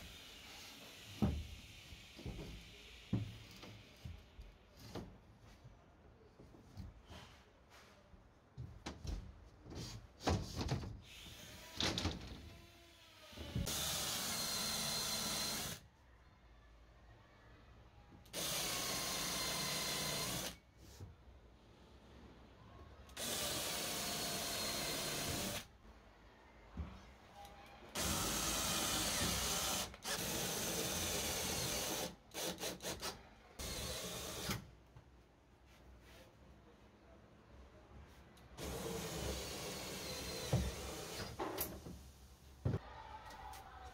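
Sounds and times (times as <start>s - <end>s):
cordless drill boring into wood: 13.7s - 15.8s, 18.4s - 20.6s, 23.2s - 25.6s, 28.0s - 34.6s, 38.6s - 41.3s.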